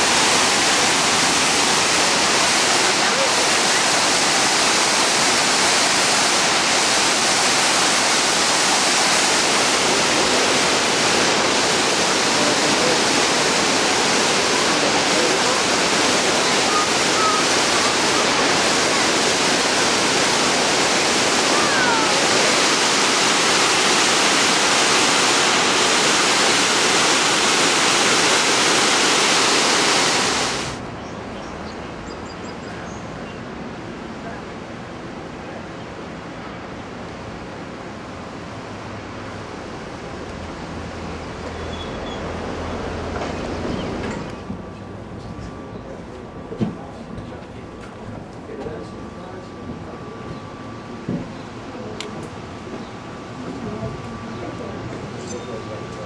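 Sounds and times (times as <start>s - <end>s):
waterfall rushing: 0.0s - 30.8s.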